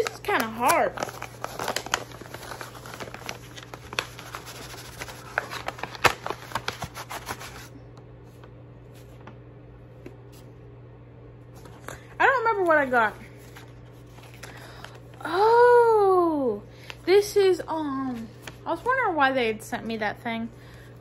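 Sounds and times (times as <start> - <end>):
paper envelope rustling and crinkling: 0.0 - 9.4, 11.6 - 15.2, 17.9 - 19.6
faint steady hum: 0.0 - 21.0.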